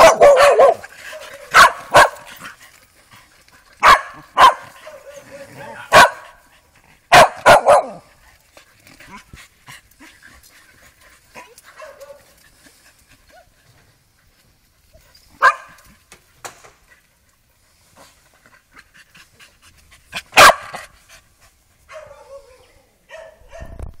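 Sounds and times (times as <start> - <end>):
dog barking: 0.0 - 2.3, 3.8 - 6.4, 7.1 - 8.0, 11.8 - 12.2, 15.4 - 15.8, 20.4 - 20.7, 21.9 - 23.8.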